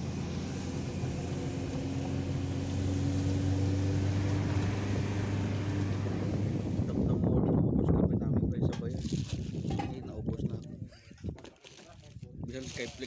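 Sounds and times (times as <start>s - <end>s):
car engine and road noise: 0.0s - 10.2s.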